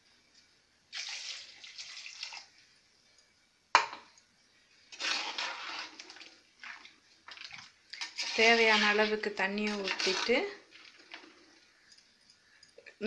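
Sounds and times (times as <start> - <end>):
water pouring and splashing: 0.9 - 2.6, 4.9 - 11.8.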